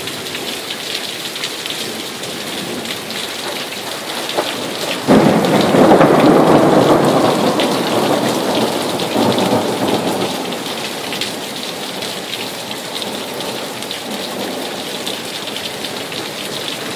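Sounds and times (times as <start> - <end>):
steady rain: 0.0 - 16.9
thunder rumbling: 2.6 - 14.8.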